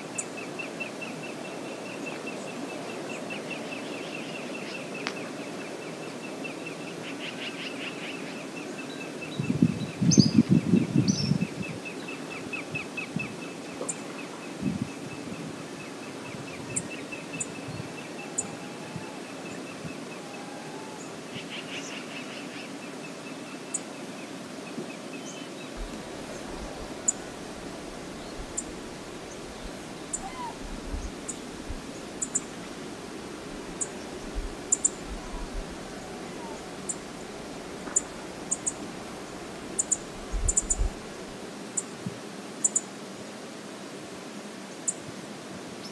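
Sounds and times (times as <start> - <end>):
flowing river water: 11.7 - 45.9
faint bird calls: 15.8 - 22.8, 25.8 - 32.5, 33.7 - 41.0.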